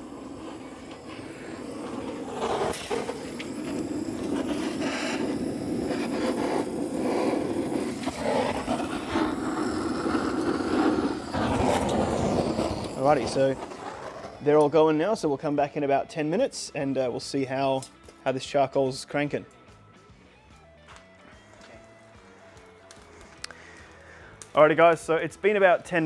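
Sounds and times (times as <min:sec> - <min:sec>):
torch flame hissing: 0:00.0 - 0:15.6, 0:22.6 - 0:25.2.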